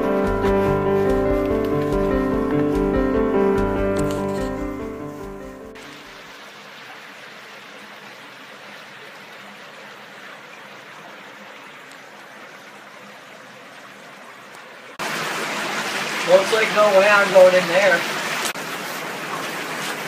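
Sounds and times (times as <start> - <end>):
brook flowing over rocks: 5.8 - 20.0.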